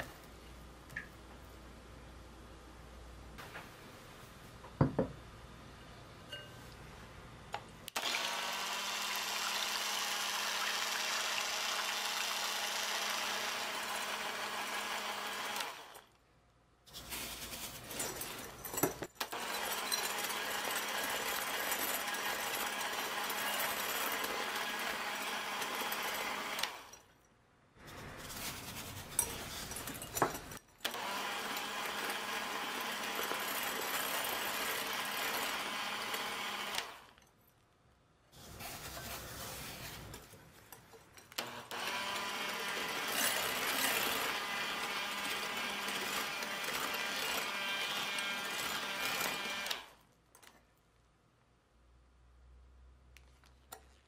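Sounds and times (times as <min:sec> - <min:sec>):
electric mixer motor whir: 0:07.9 - 0:16.1, 0:19.3 - 0:26.9, 0:30.9 - 0:37.1, 0:41.4 - 0:50.0.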